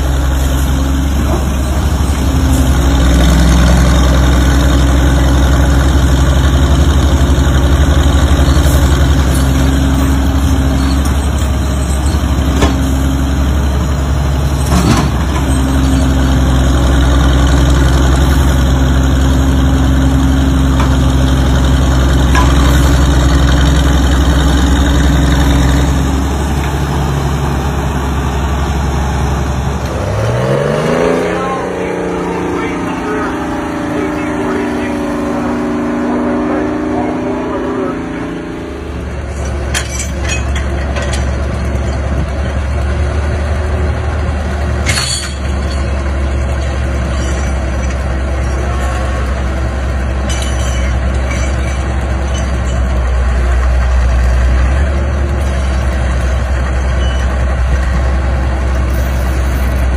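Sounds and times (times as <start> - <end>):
power shovel engine running: 0.0 - 59.9
sharp metallic clanks: 22.3 - 23.2, 39.1 - 42.3, 44.8 - 49.2, 50.1 - 53.2.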